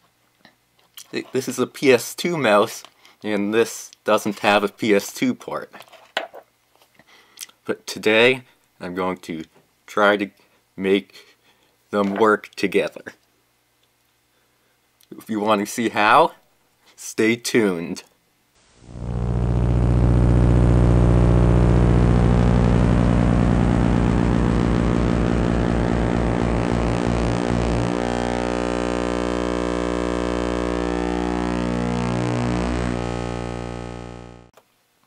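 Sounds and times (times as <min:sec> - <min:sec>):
buzzy synthesizer drone: 0:18.8 - 0:34.5
falling synth sweeps: 0:22.4 - 0:34.3.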